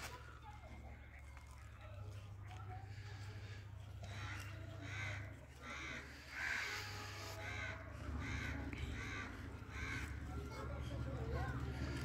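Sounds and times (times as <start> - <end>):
crow cawing: 3.2 - 10.6.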